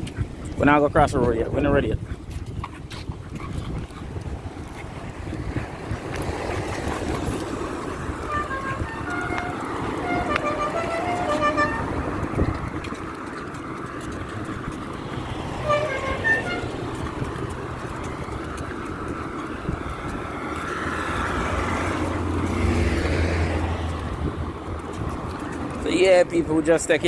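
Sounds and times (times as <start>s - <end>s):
road traffic passing: 0.0s - 27.0s
vehicle engine hum: 0.0s - 27.0s
car horn toots: 8.3s - 12.2s, 15.6s - 16.8s.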